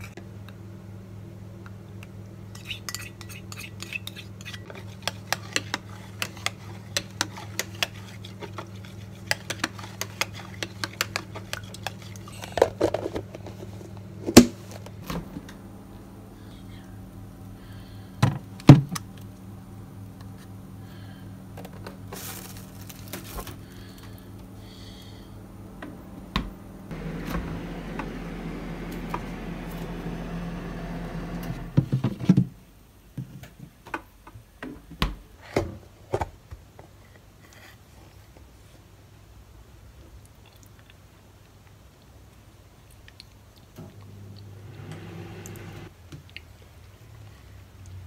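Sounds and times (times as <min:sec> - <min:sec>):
steady low hum: 0:13.2 - 0:32.0, 0:43.8 - 0:45.9.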